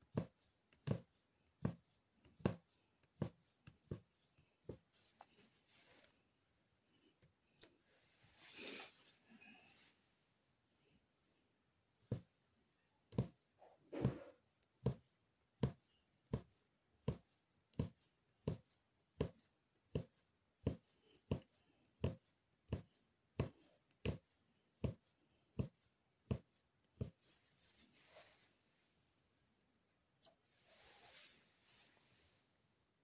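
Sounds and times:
punch needle tapping through fabric: 0.0 - 5.0, 12.1 - 12.4, 13.1 - 13.4, 14.0 - 27.3
soft rustle: 0.2 - 12.5, 23.6 - 32.8.

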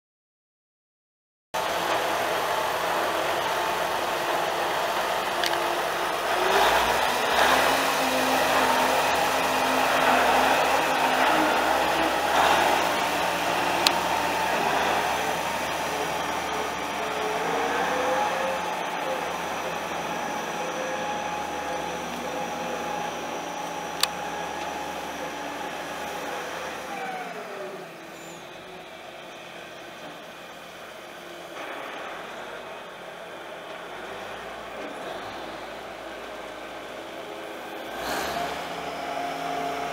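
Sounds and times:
diesel tractor engine running: 1.6 - 39.9.

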